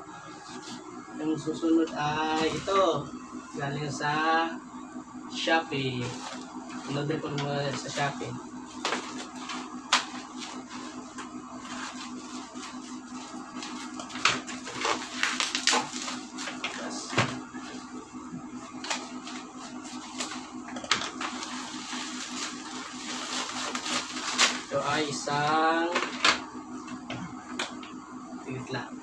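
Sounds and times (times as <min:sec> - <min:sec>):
steady low hum: 0:00.0 - 0:29.0
plastic wrap crinkling: 0:13.4 - 0:16.6, 0:21.0 - 0:24.9.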